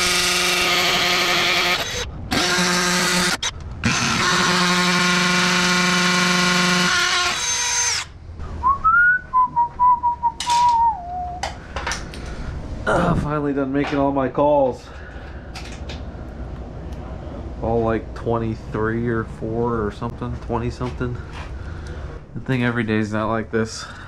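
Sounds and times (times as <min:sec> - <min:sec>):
cordless drill whining: 0:00.0 - 0:08.1
person whistling a tune: 0:08.6 - 0:11.5.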